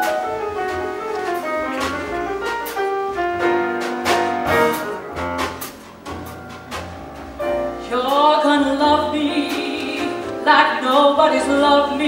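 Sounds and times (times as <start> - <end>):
double bass: 0.0 - 12.0
grand piano jazz ballad: 0.0 - 12.0
soprano singing with vibrato: 7.8 - 12.0.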